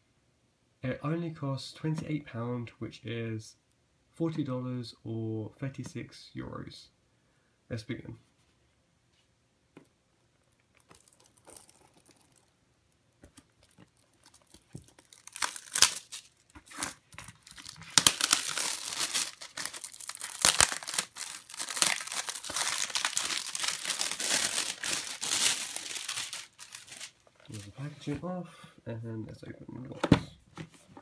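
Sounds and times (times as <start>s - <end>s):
plastic wrap tearing and crinkling: 10.8s - 12.5s, 13.4s - 27.7s.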